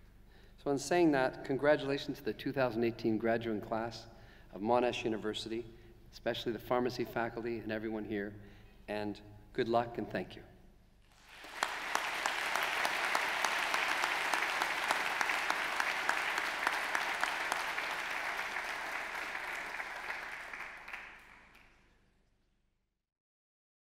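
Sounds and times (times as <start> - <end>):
audience applauding: 11.1 - 21.8.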